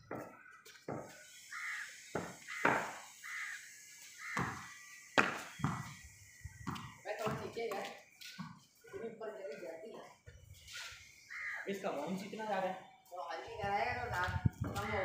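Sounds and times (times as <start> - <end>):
ball bouncing on concrete: 0.0 - 1.2, 2.1 - 3.0, 4.3 - 8.7
short bird calls: 0.2 - 7.1, 10.4 - 12.0.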